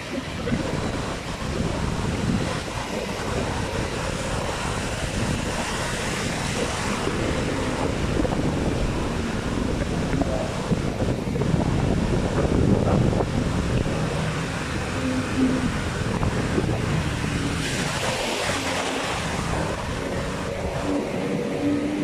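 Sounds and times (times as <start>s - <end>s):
distant outboard engines droning: 0.0s - 22.0s
ocean surf: 0.0s - 22.0s
wind buffeting microphone: 0.0s - 22.0s.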